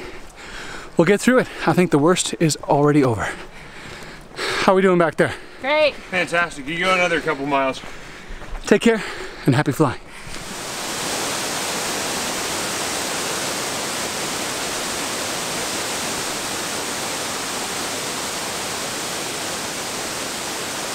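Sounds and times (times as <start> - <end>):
waterfall roaring: 10.4 - 20.9.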